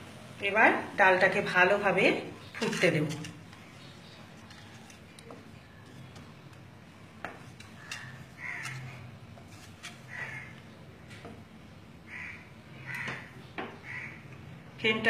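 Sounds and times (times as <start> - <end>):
crows cawing: 7.7 - 9.1, 9.9 - 10.8, 12.1 - 14.4.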